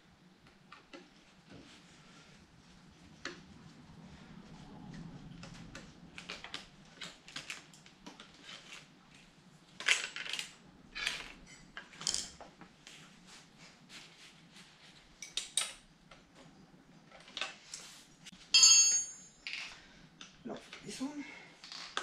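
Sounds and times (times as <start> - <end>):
tools clattering: 18.5 - 19.7.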